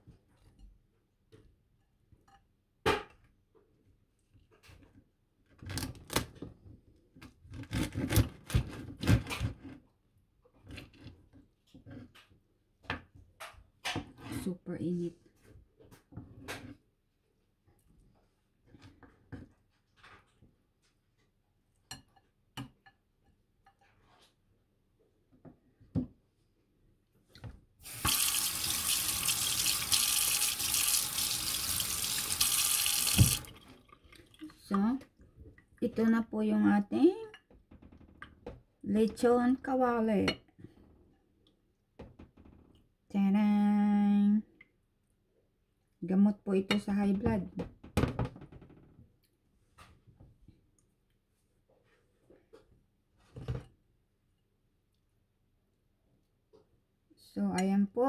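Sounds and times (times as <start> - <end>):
tap water running into sink: 27.8 - 34.4.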